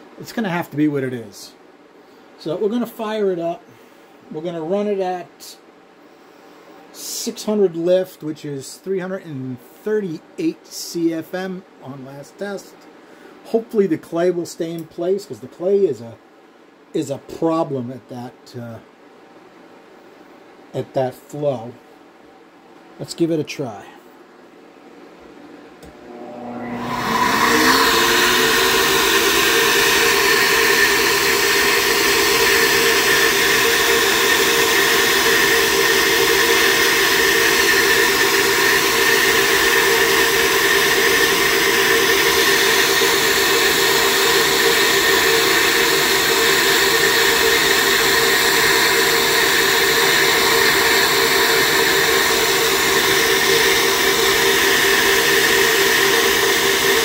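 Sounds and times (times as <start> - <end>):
flowbench motors winding up: 25.9 - 57.0.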